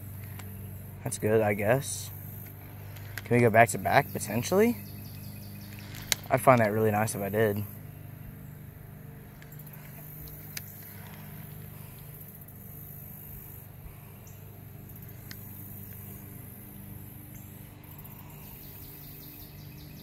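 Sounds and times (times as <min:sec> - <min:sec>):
high insect buzz: 0:00.0 - 0:20.0
steady low hum: 0:00.0 - 0:20.0
faint clicks: 0:05.1 - 0:06.7.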